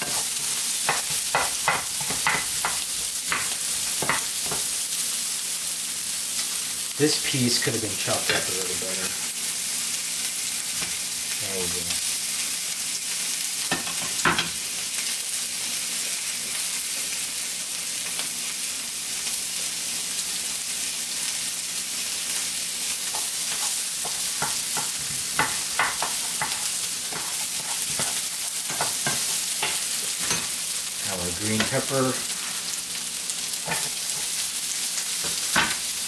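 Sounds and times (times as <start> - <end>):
food sizzling in a frying pan: 0.0 - 36.0.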